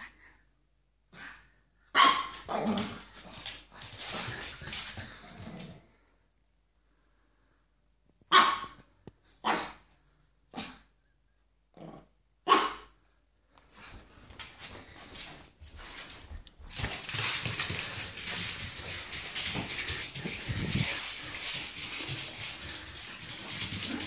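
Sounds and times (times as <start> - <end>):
puppy barking: 1.9 - 2.5, 8.3 - 8.8, 12.4 - 12.9.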